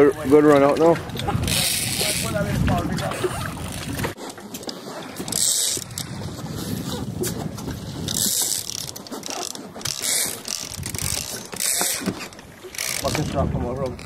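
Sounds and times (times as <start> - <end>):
fishing reel clicking and whirring: 1.4 - 2.5, 5.3 - 6.2, 8.0 - 13.4.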